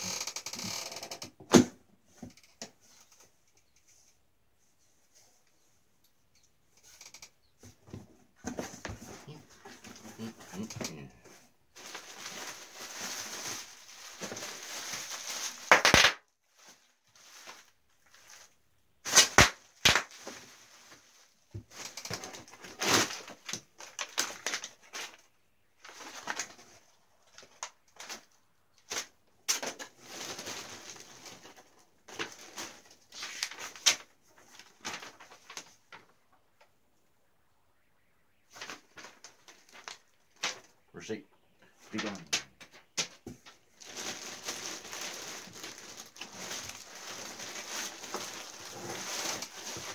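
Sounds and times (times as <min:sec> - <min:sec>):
bubble wrap and paper crinkling: 0:08.5 - 0:36.7, 0:37.8 - 0:40.9, 0:41.7 - 0:49.9.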